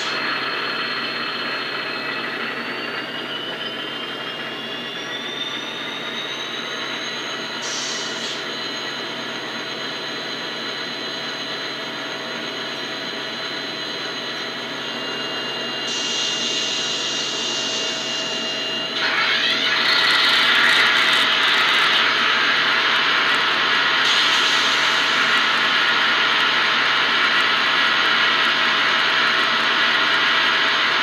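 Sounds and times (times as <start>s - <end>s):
diesel engine drone with whine: 0.0s - 31.0s
hiss: 7.6s - 8.5s, 15.8s - 18.2s, 24.0s - 25.9s.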